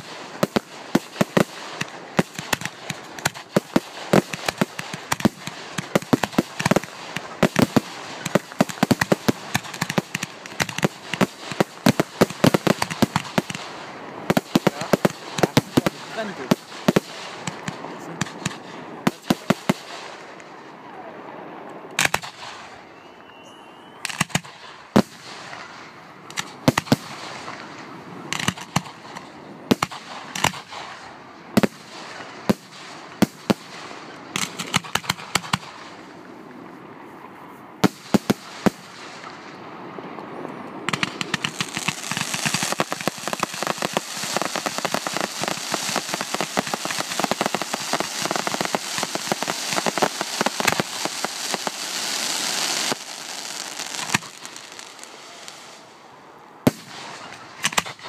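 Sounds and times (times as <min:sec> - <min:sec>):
firework shells bursting: 0:00.0 - 0:20.5, 0:28.3 - 0:30.9, 0:40.9 - 0:55.8
dense firework crackling: 0:00.0 - 0:36.3, 0:37.8 - 0:40.2, 0:40.8 - 0:58.0.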